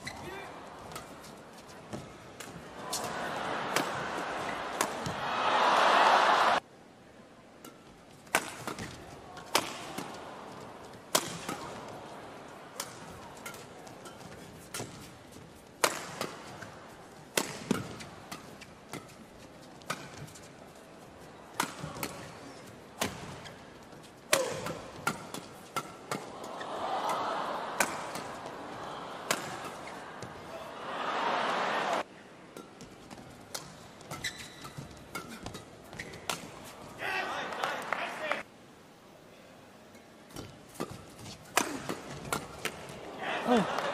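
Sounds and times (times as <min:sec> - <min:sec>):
crowd noise: 0:00.0 - 0:07.5, 0:08.3 - 0:34.1, 0:35.1 - 0:40.8, 0:41.4 - 0:43.9
rackets striking shuttlecock: 0:00.3 - 0:05.2, 0:07.6 - 0:10.2, 0:11.1 - 0:11.9, 0:15.8 - 0:16.7, 0:17.3 - 0:19.2, 0:24.3 - 0:26.4, 0:27.8 - 0:30.4, 0:33.5 - 0:36.7, 0:40.4 - 0:43.0.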